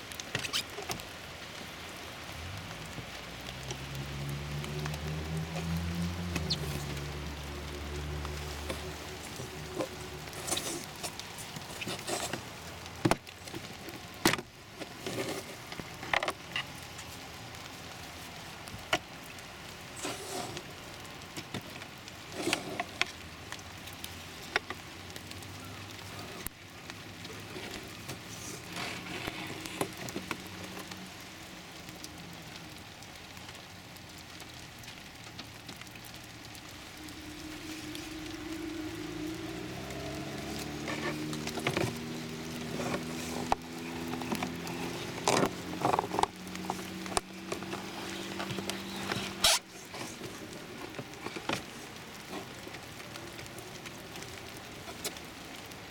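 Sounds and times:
rustling: 0:00.0 - 0:32.6, 0:33.2 - 0:55.9.

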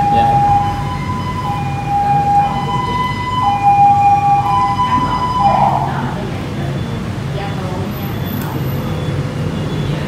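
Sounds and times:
two-tone emergency siren: 0:00.0 - 0:07.0.

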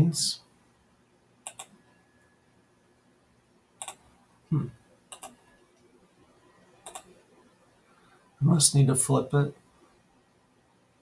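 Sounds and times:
computer mouse clicking: 0:01.4 - 0:01.8, 0:03.8 - 0:04.0, 0:05.1 - 0:05.4, 0:06.8 - 0:07.2.

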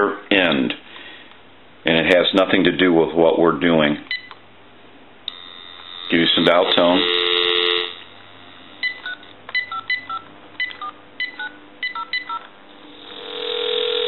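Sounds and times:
steady telephone tone: 0:05.3 - 0:14.0
touch-tone beeps: 0:08.8 - 0:12.4
telephone dial tone: 0:08.8 - 0:14.0.

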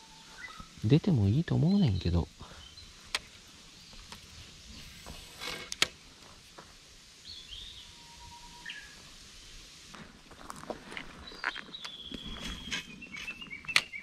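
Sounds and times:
birds chirping: 0:00.0 - 0:05.2, 0:07.2 - 0:09.1, 0:10.5 - 0:14.0.

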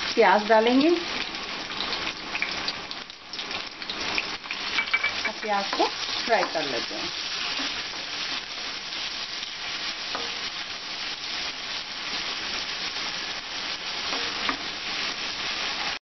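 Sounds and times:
onions sizzling in oil: 0:00.0 - 0:16.0
spatula tapping a pan: 0:04.8 - 0:06.8.

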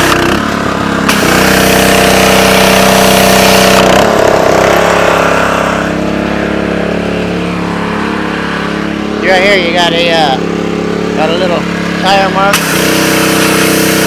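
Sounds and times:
pressure washer engine running: 0:00.0 - 0:14.0
water spray hissing on concrete: 0:12.6 - 0:14.0.

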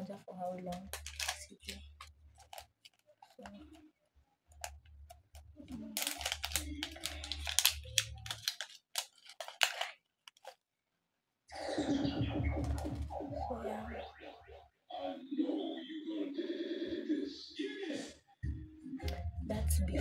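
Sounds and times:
plastic foil packaging crinkling: 0:00.0 - 0:03.8, 0:04.6 - 0:10.6
pitched music-like tone: 0:11.5 - 0:17.0.

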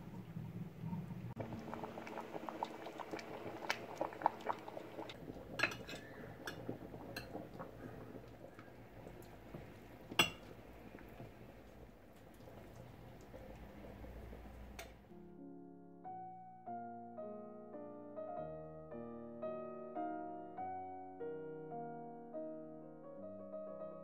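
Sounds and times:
food simmering with bubbling pops: 0:00.0 - 0:15.1
metal spoon clinking on dish: 0:10.2 - 0:10.5.

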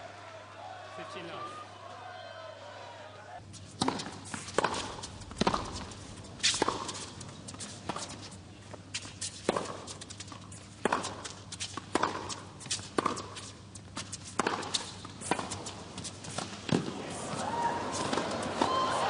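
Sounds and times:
shoes scuffing and squeaking: 0:03.4 - 0:18.2
racquets striking tennis ball: 0:03.7 - 0:08.4, 0:09.0 - 0:18.9.

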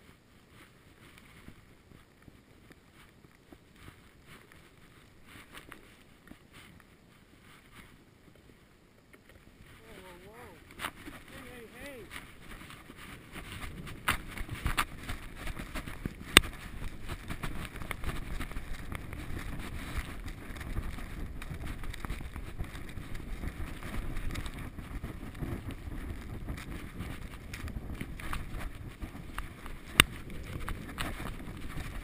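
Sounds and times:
rubbing and knocking on microphone: 0:09.6 - 0:32.0.

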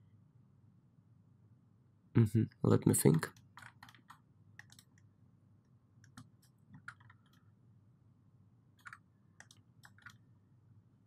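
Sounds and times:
computer mouse clicks: 0:03.1 - 0:05.1, 0:06.0 - 0:07.5, 0:08.8 - 0:10.2.

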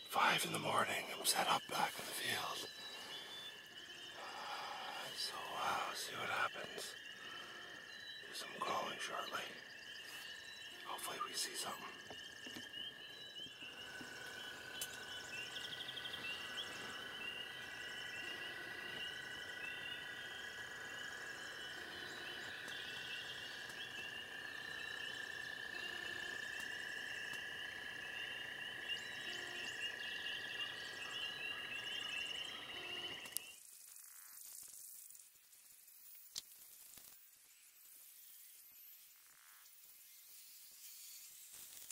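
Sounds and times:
low continuous frog trill: 0:00.0 - 0:41.9
shrill frog chorus: 0:00.1 - 0:33.3.

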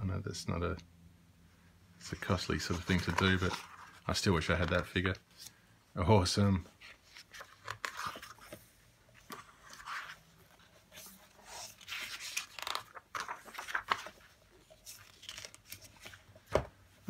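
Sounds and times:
book pages turning: 0:02.0 - 0:05.6, 0:06.7 - 0:16.7.

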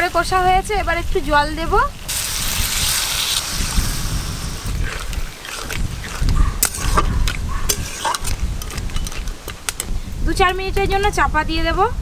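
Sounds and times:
metal spatula scraping a wok: 0:07.7 - 0:09.3.

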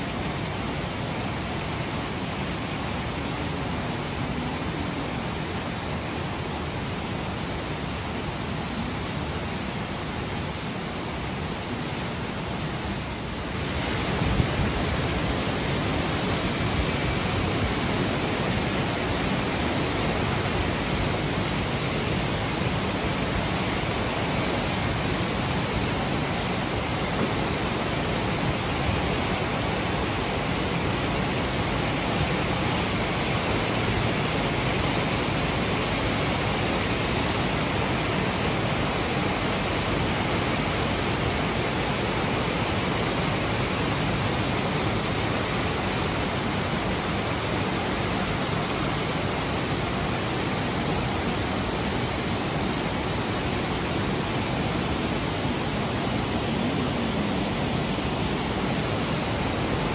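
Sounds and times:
rain falling: 0:00.0 - 0:59.9.

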